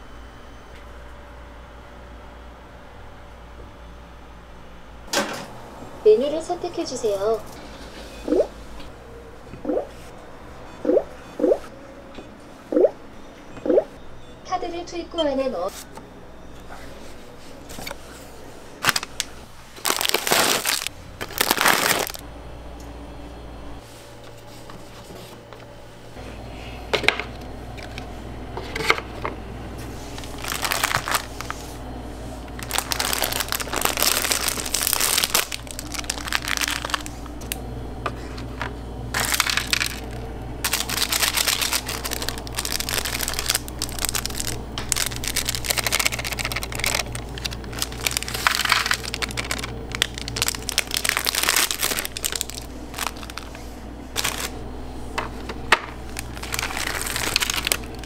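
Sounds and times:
packaging crinkling: 18.8 - 22.2, 30.0 - 31.8, 32.5 - 37.6, 39.1 - 54.6, 55.2 - 58.0.

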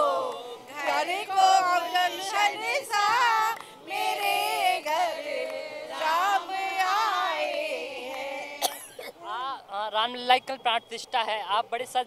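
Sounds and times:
women singing together: 0.0 - 9.4.

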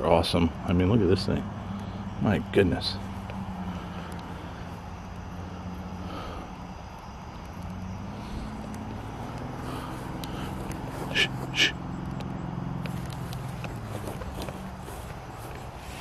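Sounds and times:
distant engine drone: 0.0 - 16.0
faint clicks: 3.2 - 5.3, 6.9 - 10.8, 12.0 - 14.7.

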